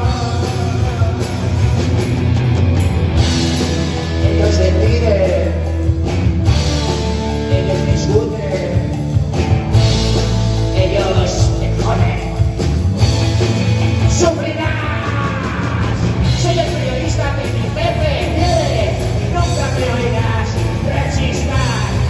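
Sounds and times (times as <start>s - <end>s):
person singing: 0.0s - 1.6s, 7.3s - 9.0s, 14.1s - 22.0s
bass guitar: 0.0s - 22.0s
drum kit: 0.0s - 22.0s
electric guitars: 0.0s - 22.0s.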